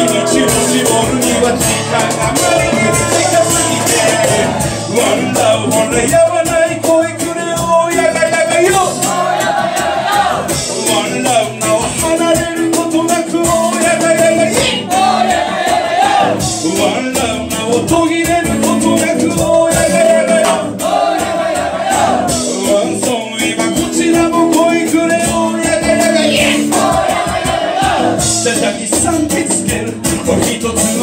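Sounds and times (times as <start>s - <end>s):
person singing: 0.0s - 9.6s, 10.2s - 15.3s, 16.2s - 31.0s
acoustic guitar: 0.0s - 31.0s
live reggae song: 0.0s - 31.0s.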